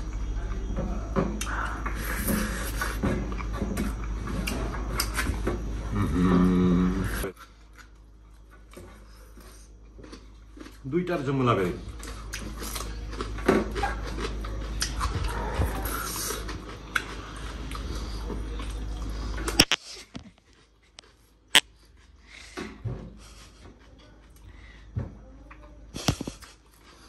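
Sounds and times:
background hum: 0.0s - 27.0s
chewing and lip-smacking: 1.4s - 5.4s, 7.3s - 10.9s, 11.8s - 22.3s, 23.3s - 24.5s.

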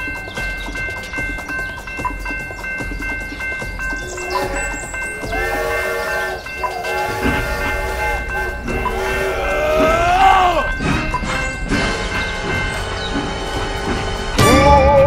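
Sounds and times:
background music: 0.0s - 15.0s
steam train whistle blasts: 4.2s - 12.1s.

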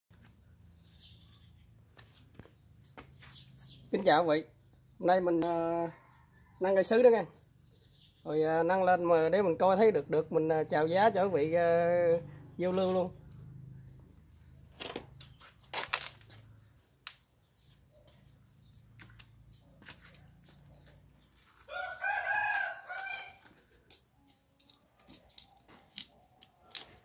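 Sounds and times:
rooster crowing: 21.6s - 23.5s.

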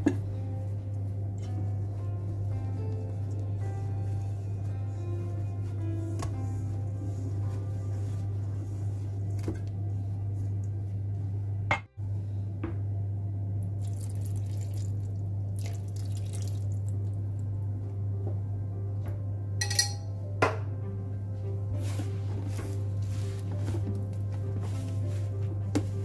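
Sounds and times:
low hum: 0.0s - 15.7s
clinks: 19.6s - 20.1s.

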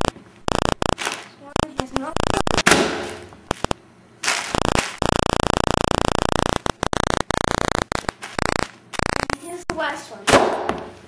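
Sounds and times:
harsh buzz with cut-outs: 0.0s - 1.0s, 4.5s - 9.7s
air pillow popping: 0.8s - 5.0s.

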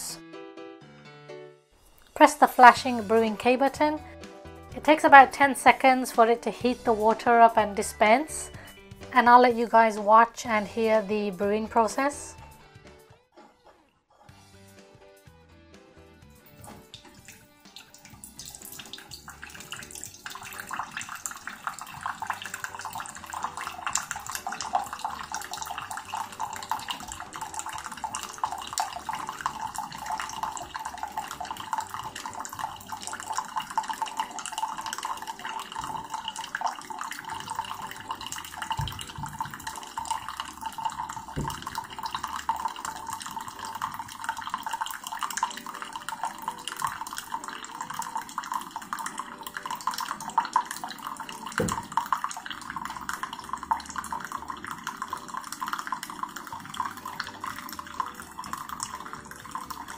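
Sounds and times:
coffee pouring into a mug: 16.3s - 59.9s.

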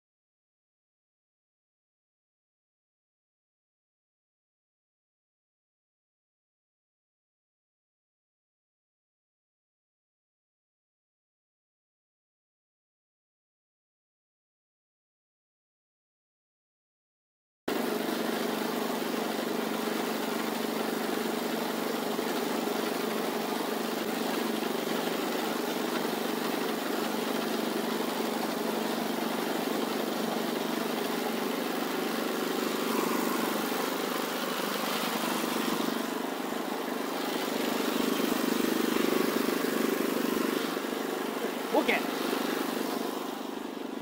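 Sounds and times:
small petrol engine running: 17.7s - 44.0s.

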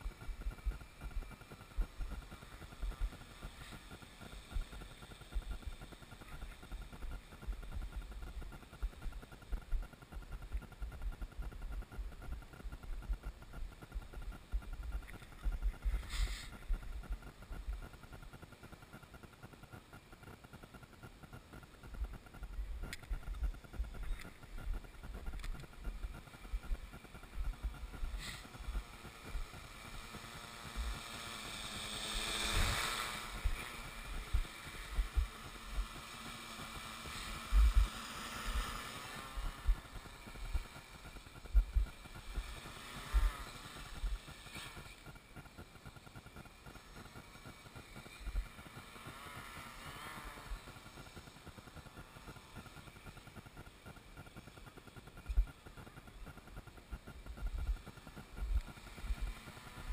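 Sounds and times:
sharp clicks: 0.0s - 29.4s
drone propellers buzzing: 0.0s - 59.9s.

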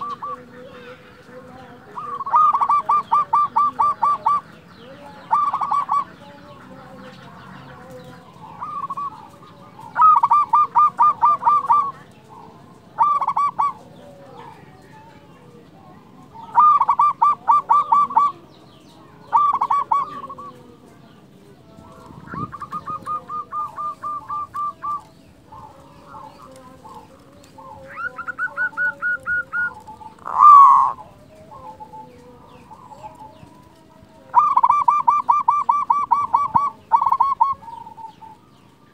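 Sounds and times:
doves cooing: 0.0s - 38.9s
small birds chirping: 0.0s - 38.9s
loud sweeping bird call: 2.0s - 12.1s, 16.3s - 20.5s, 21.9s - 33.6s.

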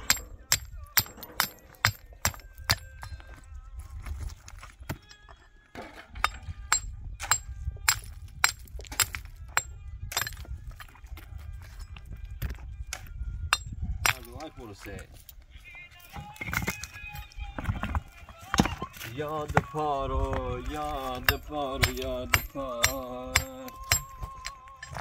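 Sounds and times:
shovel clinking into rocky earth: 0.0s - 3.4s, 4.9s - 15.4s, 20.6s - 25.0s.

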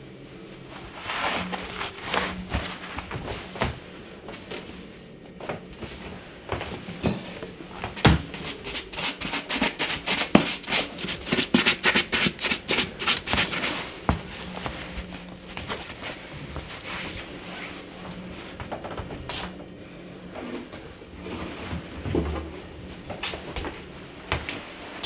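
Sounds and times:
fabric rustling: 0.1s - 9.5s, 10.3s - 19.5s.

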